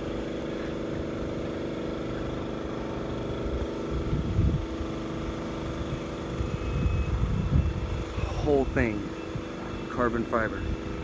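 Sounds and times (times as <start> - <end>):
engine idling: 0.0 - 11.0.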